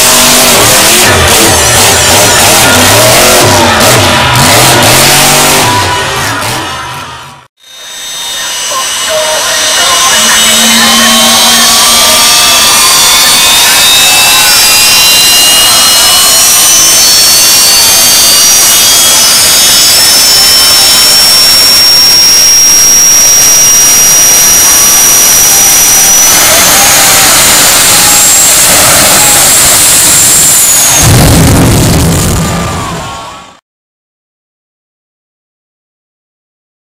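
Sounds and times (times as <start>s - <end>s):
turbine engine roaring and whining: 0.0s - 33.6s
afterburner blast: 10.0s - 33.2s.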